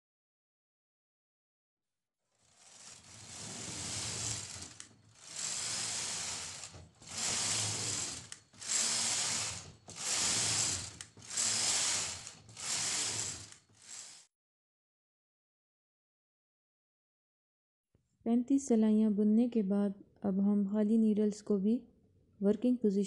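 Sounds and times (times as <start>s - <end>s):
knitting machine carriage clattering: 2.4s - 14.2s.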